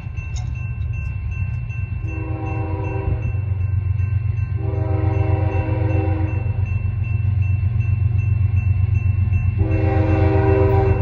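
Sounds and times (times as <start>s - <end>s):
low train rumble: 0.0s - 11.0s
train air horn blasts: 2.1s - 3.4s, 4.6s - 6.6s, 9.6s - 11.0s.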